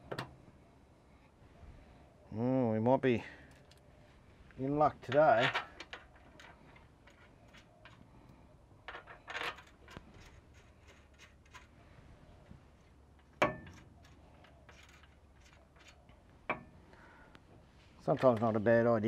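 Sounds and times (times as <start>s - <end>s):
small steel parts clinking: 5.0s - 8.0s, 8.8s - 11.7s, 13.2s - 16.7s.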